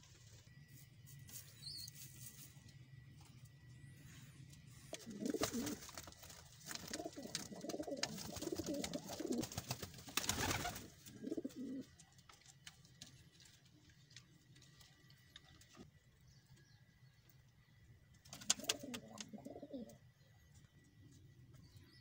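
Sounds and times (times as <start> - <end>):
pigeons cooing: 4.9 - 5.9, 6.8 - 9.5, 10.4 - 12.0, 18.4 - 20.0.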